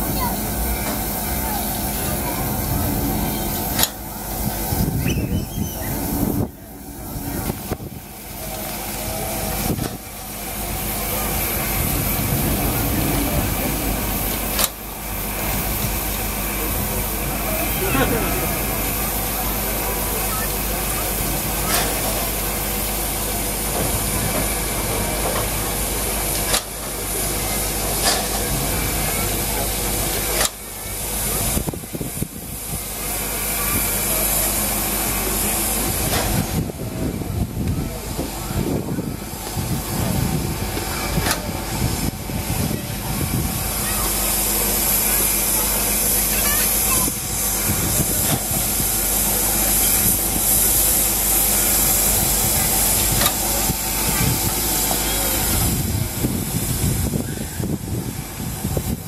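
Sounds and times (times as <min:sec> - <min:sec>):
locomotive steam hissing: 0:00.0 - 0:59.0.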